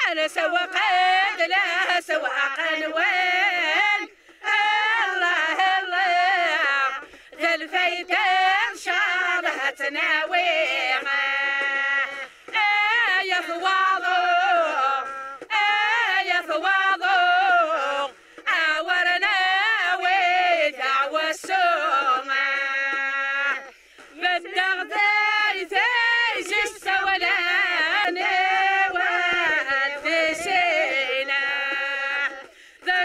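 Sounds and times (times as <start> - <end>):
women singing in unison: 0.0 - 33.0
singers breathing: 4.1 - 4.4, 7.0 - 7.4, 12.1 - 12.6, 18.1 - 18.5, 23.7 - 24.2, 32.4 - 32.9.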